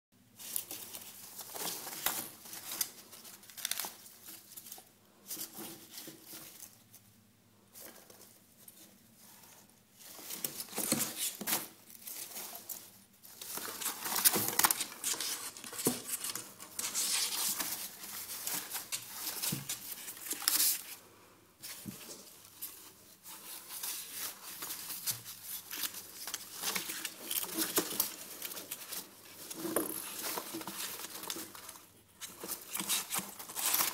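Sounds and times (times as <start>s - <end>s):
packing peanuts rustling in a box: 21.6s - 33.9s.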